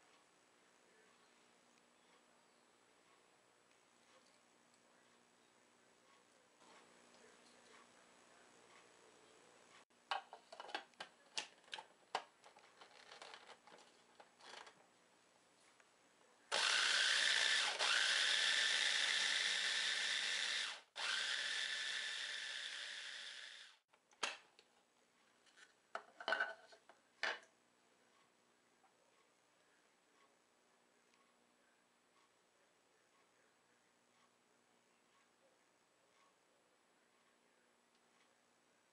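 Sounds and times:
food processor grinding: 16.5s - 23.7s.

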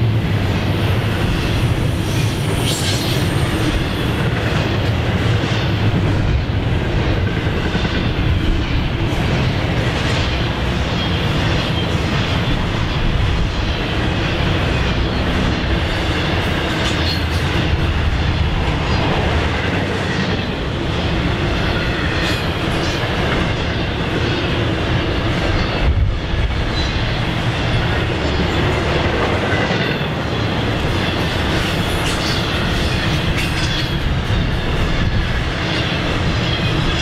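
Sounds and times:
train wheels rumbling on rail: 0.0s - 37.0s.

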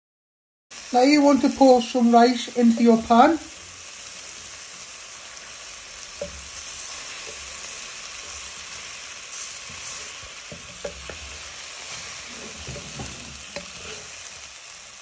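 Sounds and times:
vegetables sizzling in oil: 0.7s - 15.0s
wooden spatula knocking pan: 6.1s - 8.6s, 9.6s - 14.0s.

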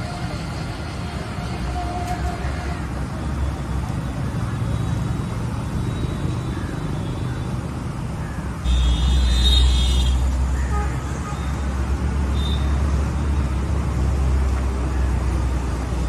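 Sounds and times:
traffic rumble: 0.0s - 16.0s.

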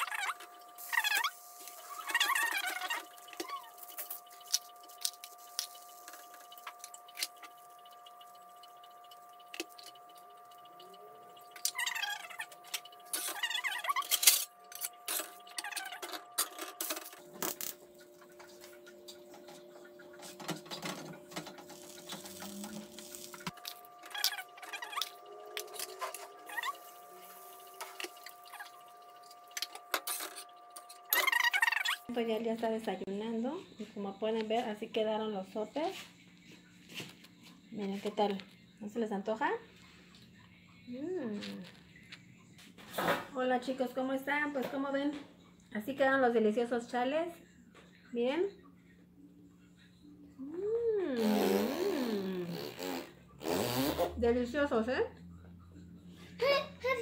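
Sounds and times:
faint steady tone: 0.0s - 34.3s.

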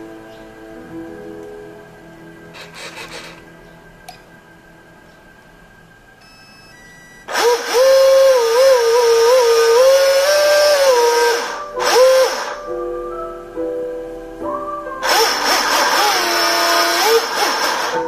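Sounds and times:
short electronic beeps: 6.2s - 7.3s
electric motor whine: 6.2s - 12.8s, 15.0s - 18.0s.

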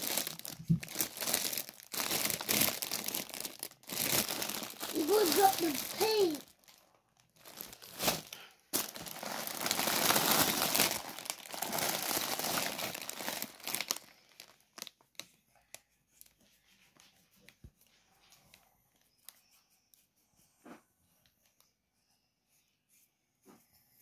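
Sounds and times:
plastic packaging crinkling: 0.0s - 15.4s.

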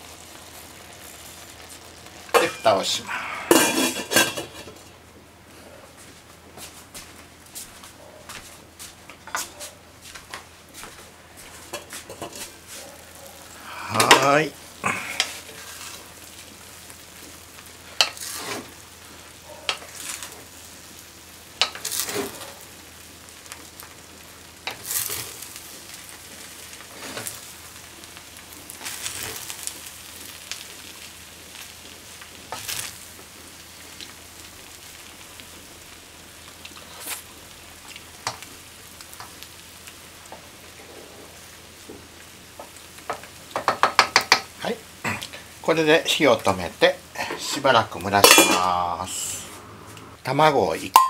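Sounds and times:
rice sizzling in a frying pan: 0.0s - 51.0s
spatula scraping a pan: 0.5s - 4.8s, 18.0s - 18.8s.

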